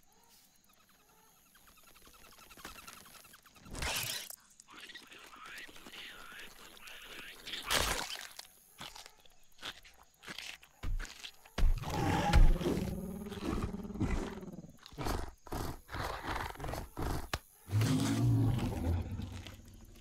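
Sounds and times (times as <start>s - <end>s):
crunching chewing clicks: 3.9s - 20.0s
deep growls: 11.8s - 20.0s.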